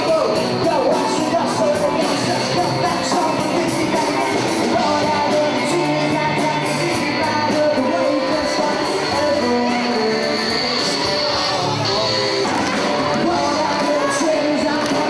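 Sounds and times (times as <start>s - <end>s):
rock music with singing: 0.0s - 15.0s.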